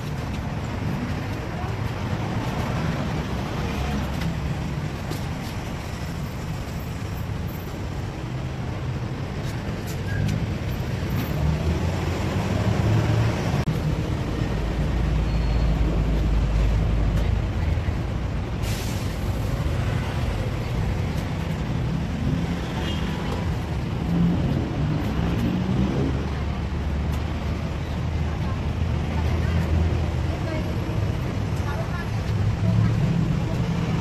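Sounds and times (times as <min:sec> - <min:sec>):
passing vehicle engine rumble: 0:00.0 - 0:34.0
street traffic rumble: 0:00.0 - 0:34.0.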